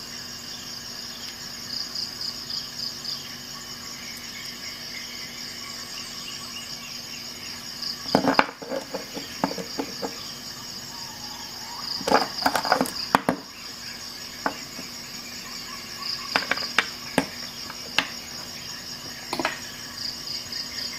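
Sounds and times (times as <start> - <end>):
crickets chirping: 0.0 - 20.9
sharp clicks and knocks: 8.1 - 10.2, 16.3 - 18.5, 19.3 - 19.6.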